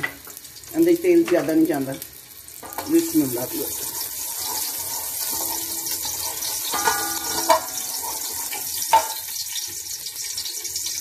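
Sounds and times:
onion sizzling in hot oil: 0.0 - 11.0
wooden spoon knocking against pot: 6.7 - 8.1.

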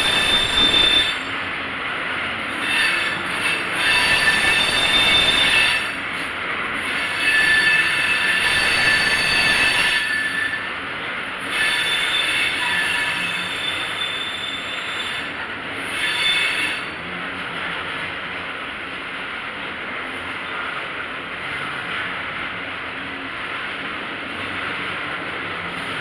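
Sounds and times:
high-pitched wheel squeal: 0.0 - 1.4, 2.5 - 6.1, 6.8 - 10.8, 11.4 - 17.0
train wheels rumbling on rails: 0.0 - 26.0.

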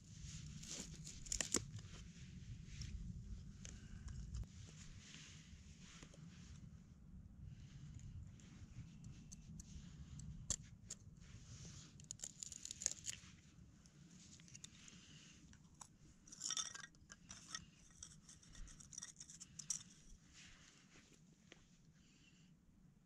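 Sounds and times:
sticks clattering: 16.3 - 20.0.

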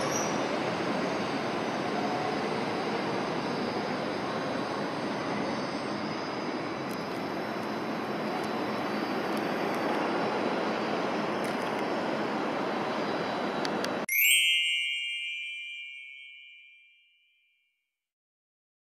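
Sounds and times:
train rushing rumble: 0.0 - 14.1.

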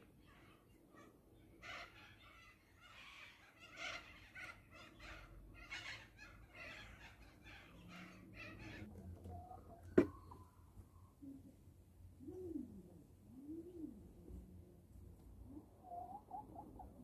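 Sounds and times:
hen clucking softly: 15.4 - 17.0.

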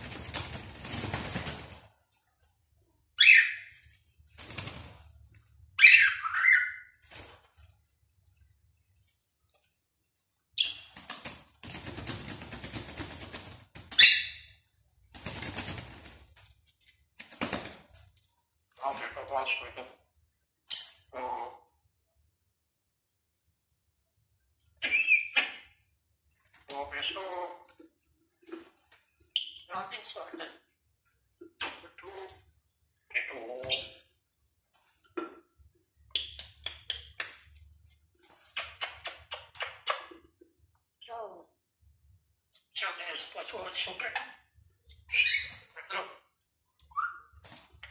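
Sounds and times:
parrot flapping wings in cage: 0.0 - 2.0, 4.2 - 5.3, 7.0 - 7.8, 10.8 - 14.3, 14.9 - 18.1.

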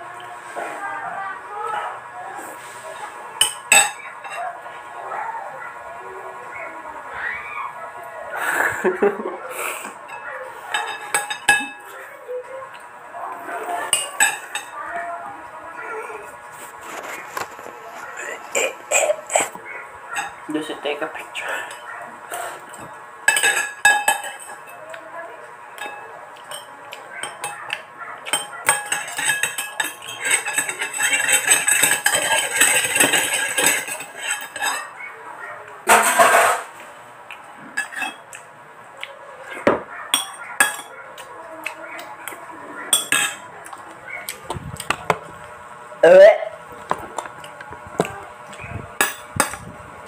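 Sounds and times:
cutlery clinking on ceramic bowl: 3.4 - 4.4, 10.1 - 11.9, 13.9 - 14.8, 22.7 - 25.0, 25.8 - 34.9, 35.9 - 36.8, 37.8 - 38.4, 39.7 - 41.0, 42.2 - 43.4, 49.0 - 49.6.

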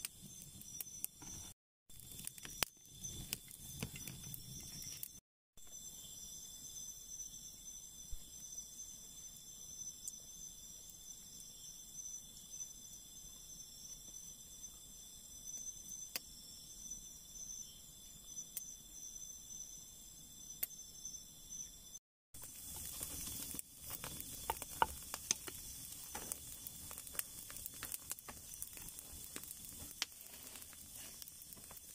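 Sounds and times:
campfire embers crackling: 0.0 - 5.2, 22.4 - 31.9
crickets trilling: 0.0 - 31.9.

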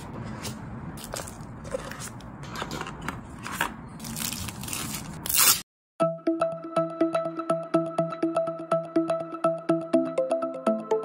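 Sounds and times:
cardboard box and plastic film rustling: 0.4 - 5.6.

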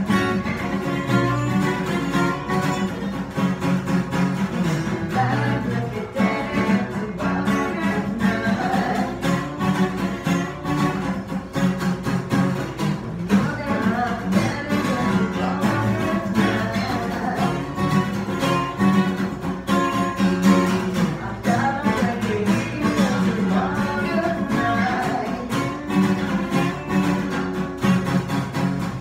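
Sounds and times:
acoustic guitars strumming: 0.0 - 29.0
woman singing: 4.8 - 10.6, 13.0 - 18.8, 20.6 - 26.9.

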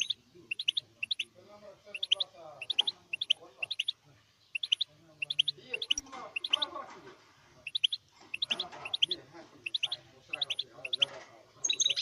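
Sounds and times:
faint lower twittering: 0.0 - 6.7, 7.6 - 12.0
bird chirping high notes: 1.9 - 6.7.

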